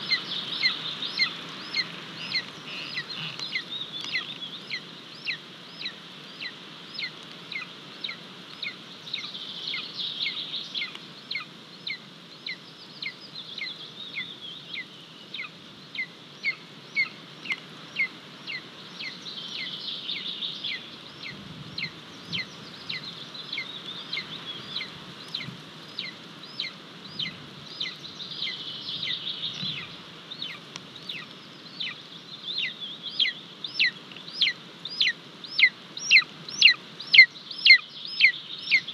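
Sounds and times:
eagle chick begging calls: 0:00.0 - 0:13.7, 0:20.7 - 0:38.9.

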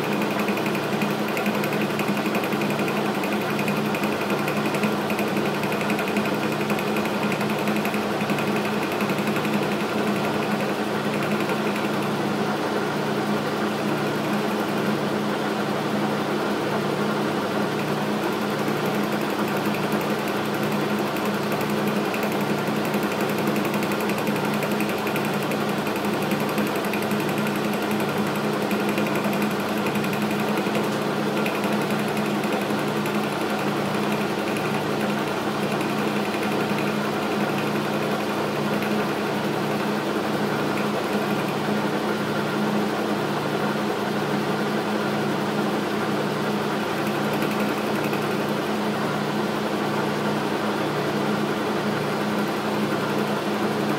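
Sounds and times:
metal lathe running: 0:00.0 - 0:12.4, 0:17.8 - 0:41.9.

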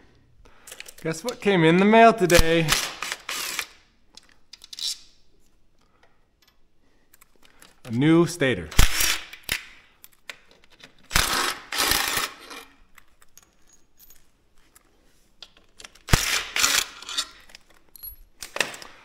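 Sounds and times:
small metallic clinks: 0:12.9 - 0:14.8, 0:17.2 - 0:18.3.

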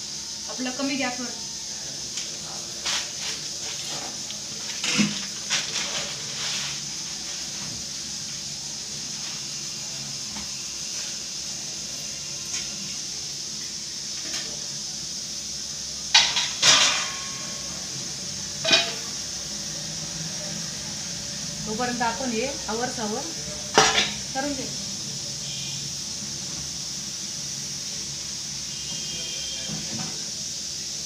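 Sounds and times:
gas stove hissing: 0:00.0 - 0:31.0
kitchen utensils clinking: 0:03.3 - 0:06.2, 0:16.2 - 0:17.7, 0:18.6 - 0:19.2, 0:23.7 - 0:24.2.

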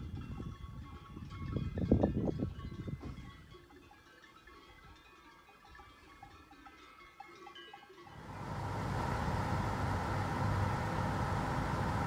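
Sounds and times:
car driving along a road: 0:08.2 - 0:12.0.

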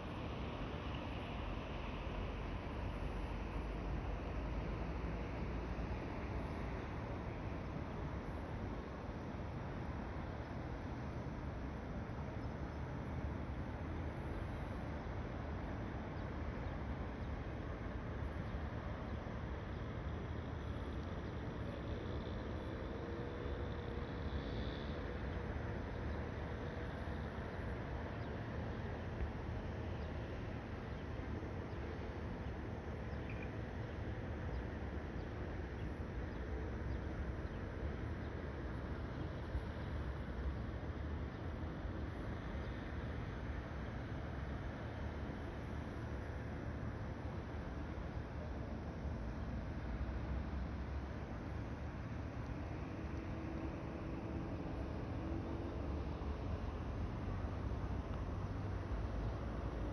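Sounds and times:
distant traffic rumble: 0:00.0 - 0:59.9
faint high chirps: 0:33.2 - 0:33.6.

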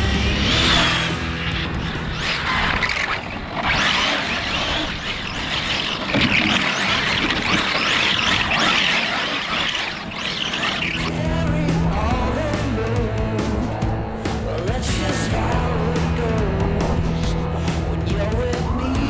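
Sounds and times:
rc car tyre scrub: 0:00.0 - 0:11.1
rc car drivetrain noise: 0:00.0 - 0:12.6.

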